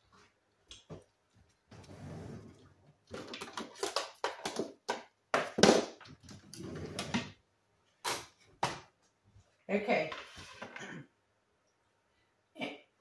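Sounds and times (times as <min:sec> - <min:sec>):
kitchen rustling and clattering: 0:00.0 - 0:07.4, 0:08.0 - 0:11.0.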